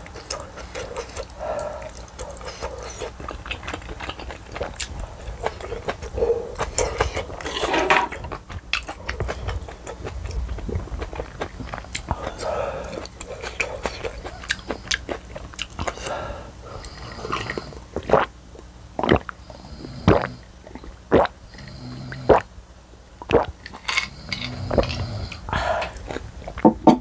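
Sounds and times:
person gulping a drink: 0:17.3 - 0:19.4, 0:20.0 - 0:21.3, 0:23.2 - 0:26.7.

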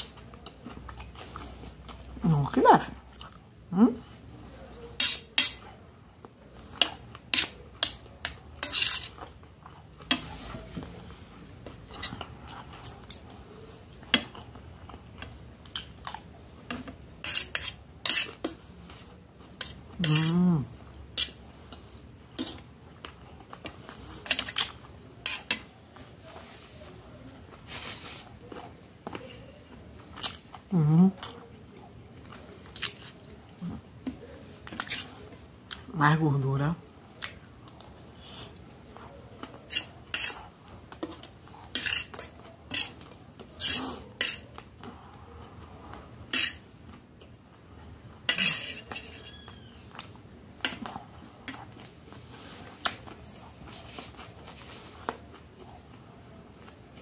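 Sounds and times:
cutlery clinking on metal plate: 0:41.8 - 0:43.0, 0:48.3 - 0:49.4.

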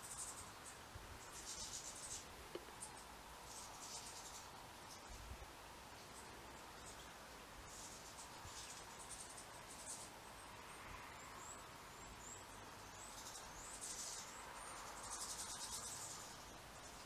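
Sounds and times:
goldfinches twittering: 0:00.0 - 0:05.1, 0:11.4 - 0:17.0.

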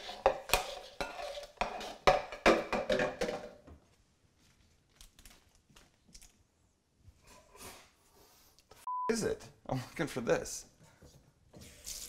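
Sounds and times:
kitchenware knocks and clatters: 0:00.2 - 0:03.8.

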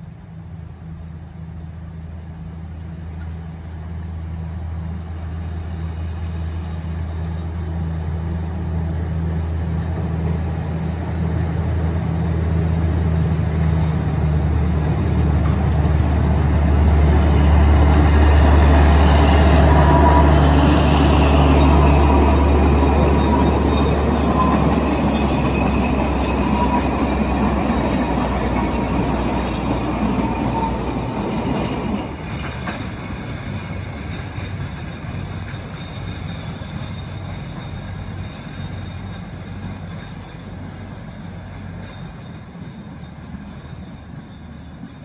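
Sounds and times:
diesel locomotive droning: 0:00.0 - 0:45.0
wagons rolling on rails: 0:09.0 - 0:45.0
thin wheel squeal: 0:19.2 - 0:40.5.

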